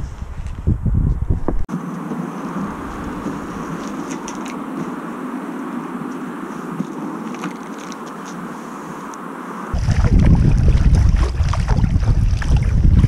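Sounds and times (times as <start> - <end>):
wind buffeting microphone: 0.0 - 8.5, 9.7 - 13.0
water splashing from paddle: 9.8 - 13.0.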